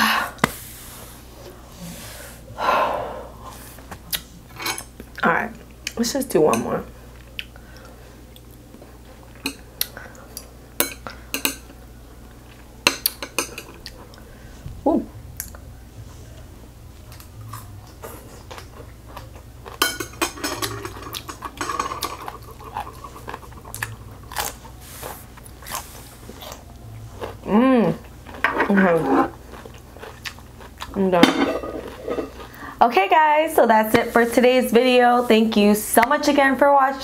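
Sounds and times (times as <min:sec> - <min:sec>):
close-up eating and chewing: 0:06.9 - 0:14.6, 0:15.2 - 0:32.8.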